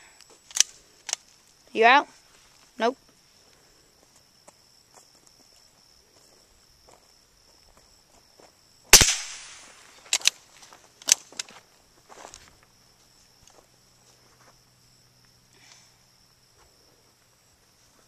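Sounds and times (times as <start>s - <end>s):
rifle shot with echo: 8.9s - 9.8s
rifle bolt clicks: 10.1s - 10.4s.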